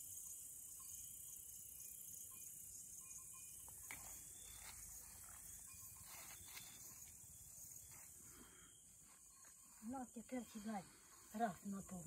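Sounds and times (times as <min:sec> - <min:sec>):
crickets chirring: 0:00.0 - 0:12.0
soft faint sounds: 0:03.3 - 0:12.0.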